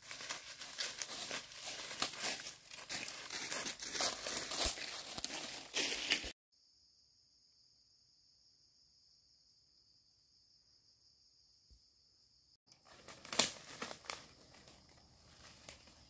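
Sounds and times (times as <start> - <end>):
faint insect chirping: 6.5 - 16.0.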